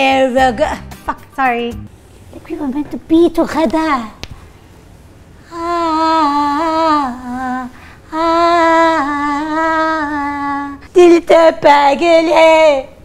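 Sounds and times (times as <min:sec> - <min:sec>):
woman singing wailing notes: 0:05.5 - 0:12.9.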